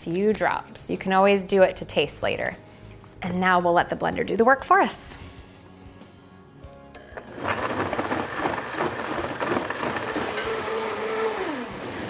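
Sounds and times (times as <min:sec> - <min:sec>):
blender running: 0:07.0 - 0:12.0.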